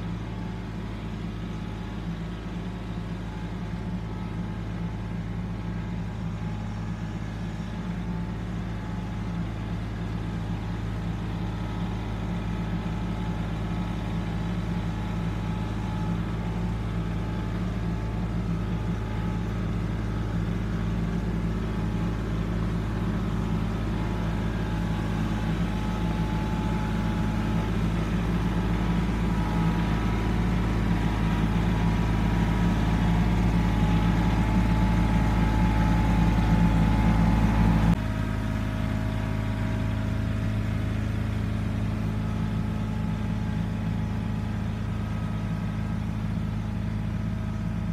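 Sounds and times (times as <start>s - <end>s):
tractor engine under load: 0.0s - 47.9s.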